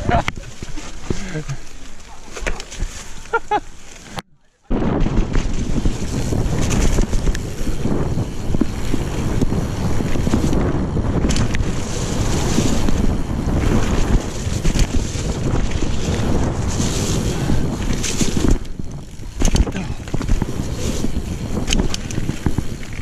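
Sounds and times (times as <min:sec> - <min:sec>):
mountain bike rumbling on dirt: 0:00.0 - 0:23.0
wind over microphone: 0:04.7 - 0:23.0
bike knocks and rattles: 0:04.8 - 0:23.0.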